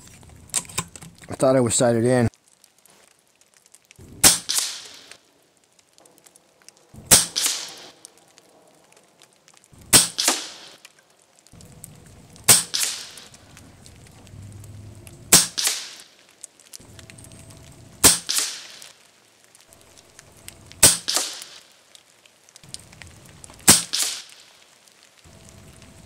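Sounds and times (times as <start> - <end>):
air rifle shots cracking: 4.2 - 5.2, 7.1 - 8.0, 9.9 - 10.8, 12.5 - 13.4, 15.3 - 16.2, 18.0 - 18.9, 20.8 - 21.7, 23.6 - 24.4.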